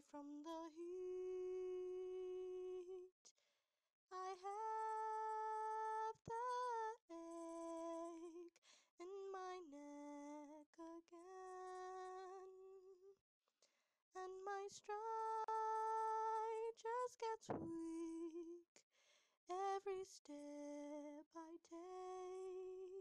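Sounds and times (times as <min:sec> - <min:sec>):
breaths: 0:03.3 - 0:03.7, 0:08.6 - 0:09.0, 0:13.6 - 0:14.0, 0:18.9 - 0:19.4.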